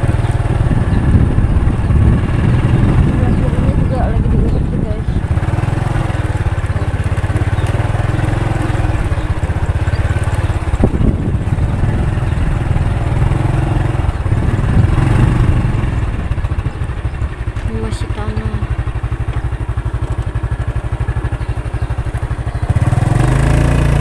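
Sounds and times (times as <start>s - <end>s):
motorcycle engine putter: 3.5s - 12.8s, 16.2s - 23.0s.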